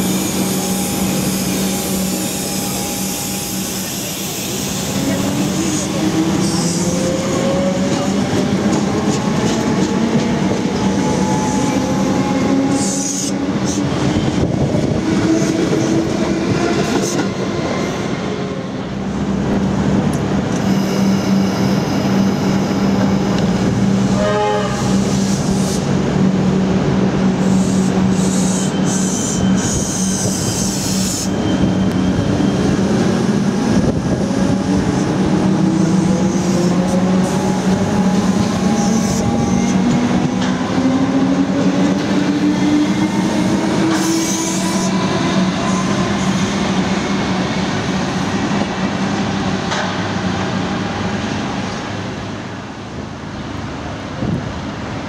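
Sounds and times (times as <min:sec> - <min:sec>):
electric train motors whining: 0:00.0 - 0:08.0
train wheels on rails: 0:00.0 - 0:55.0.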